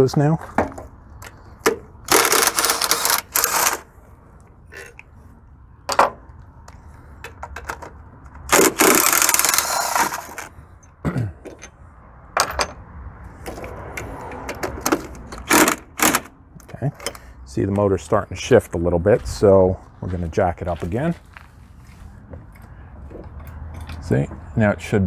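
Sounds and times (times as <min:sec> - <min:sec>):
ratchet wrench clicking: 0:08.5 - 0:10.4.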